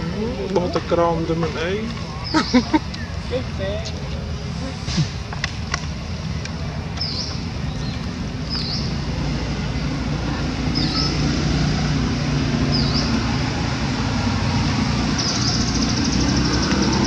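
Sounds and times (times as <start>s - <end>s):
low engine rumble: 0.0s - 17.0s
bird chirping: 7.0s - 9.1s, 10.7s - 11.4s, 12.7s - 13.3s, 15.1s - 17.0s.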